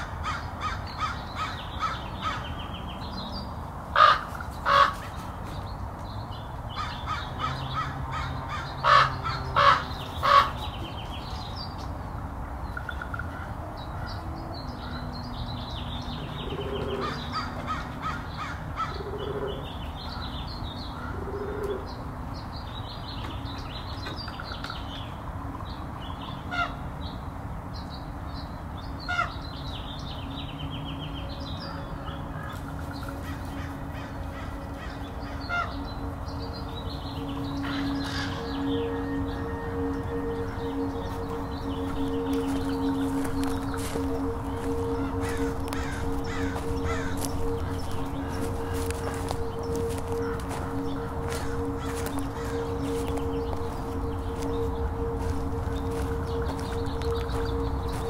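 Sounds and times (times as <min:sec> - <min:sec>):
crows cawing: 0:00.0 - 0:02.6, 0:03.9 - 0:05.3, 0:06.8 - 0:10.8, 0:16.5 - 0:20.4, 0:31.7 - 0:35.9, 0:37.2 - 0:58.0
small birds chirping: 0:27.8 - 0:58.0.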